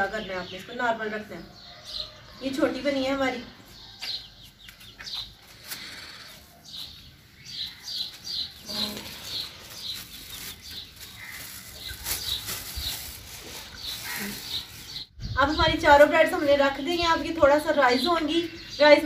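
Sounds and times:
small birds chirping: 0:00.0 - 0:19.0
plastic bag crinkling: 0:08.5 - 0:15.1.

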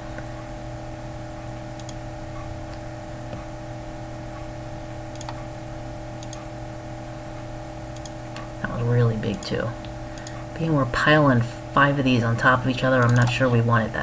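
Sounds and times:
electrical hum and hiss: 0:00.0 - 0:14.0
computer mouse clicks: 0:01.8 - 0:02.0, 0:05.1 - 0:05.4, 0:06.2 - 0:06.4, 0:08.0 - 0:08.5, 0:10.2 - 0:10.4, 0:13.0 - 0:13.4.

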